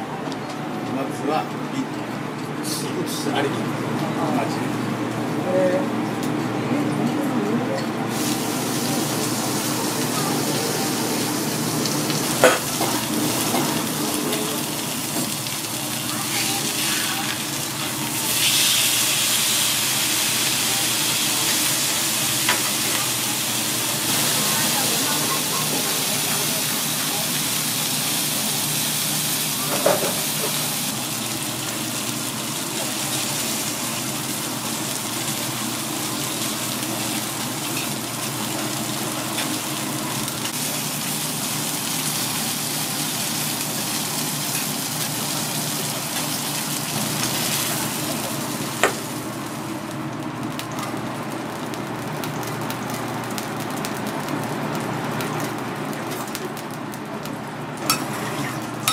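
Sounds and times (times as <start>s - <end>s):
steak sizzling on a griddle: 8.1s - 56.8s.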